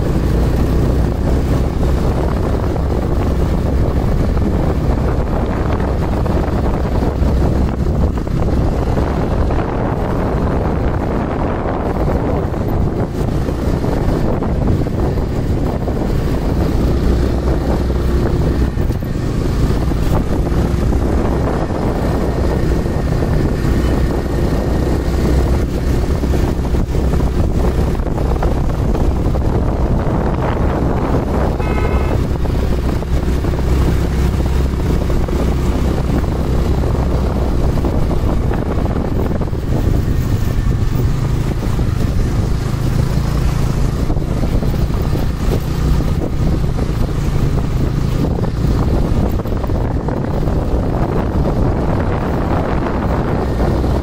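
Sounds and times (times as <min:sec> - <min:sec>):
vehicle driving rumble: 0:00.0 - 0:54.0
wind buffeting microphone: 0:00.0 - 0:54.0
short high stacked tone: 0:31.5 - 0:32.3.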